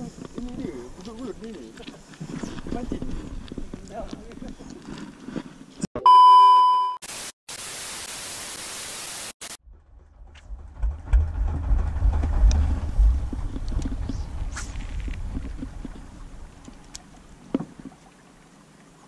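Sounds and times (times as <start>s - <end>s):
loud high beep: 6.0s - 7.0s
static hiss: 7.0s - 9.6s
wind buffeting microphone: 10.5s - 17.8s.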